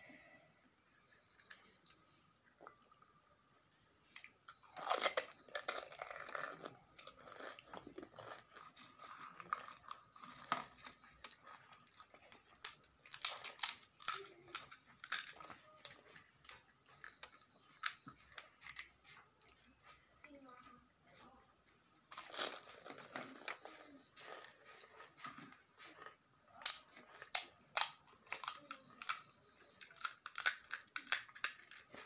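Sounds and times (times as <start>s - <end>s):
chewing: 4.1s - 32.0s
crisp shells crunching: 4.8s - 10.7s, 22.1s - 23.2s, 29.8s - 31.8s.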